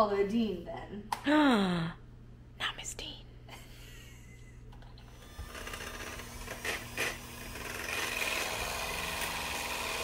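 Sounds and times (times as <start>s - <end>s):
electric mixer whirring: 5.0s - 10.0s.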